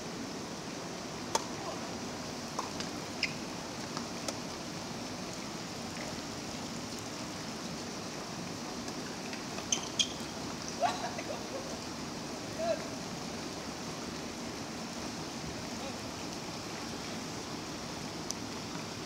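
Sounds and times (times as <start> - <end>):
steady hiss: 0.0 - 19.0
tennis ball pops: 1.3 - 1.5.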